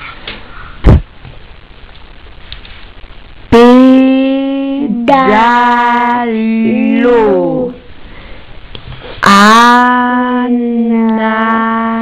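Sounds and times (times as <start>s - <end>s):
voice holding long note: 3.5s - 7.9s, 9.2s - 12.0s.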